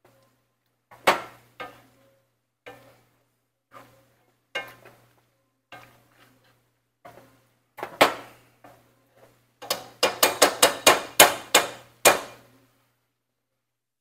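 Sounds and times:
potato masher knocking on pan: 9.6s - 12.3s.

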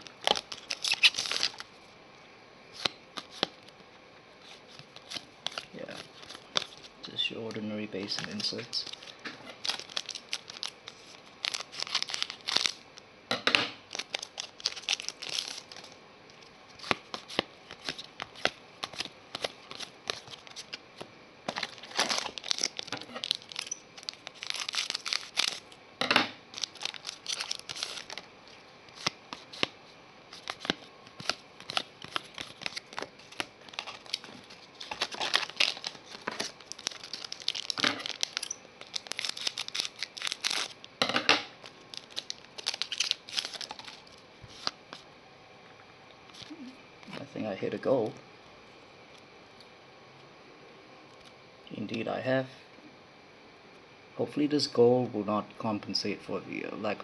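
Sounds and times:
trading cards flicking and rustling: 0.0s - 1.7s, 2.7s - 3.8s, 4.4s - 12.8s, 16.7s - 25.7s, 26.5s - 28.2s, 28.9s - 40.8s.

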